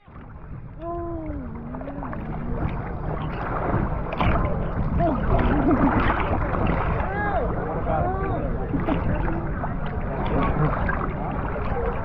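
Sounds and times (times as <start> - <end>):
water sloshing and lapping: 0.0 - 12.0
wind: 0.0 - 12.0.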